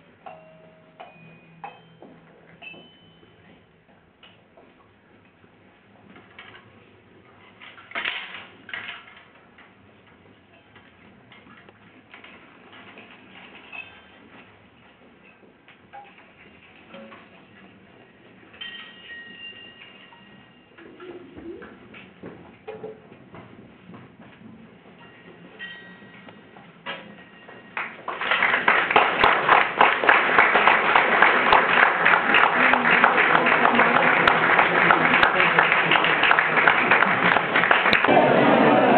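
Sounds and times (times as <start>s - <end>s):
hanging metal objects clinking: 12.3s - 14.4s, 18.5s - 20.7s
audience applause: 27.8s - 38.9s.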